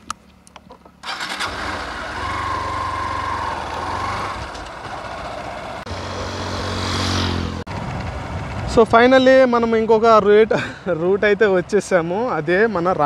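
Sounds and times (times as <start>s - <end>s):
motorcycle engine starting and running: 0.6s - 9.2s.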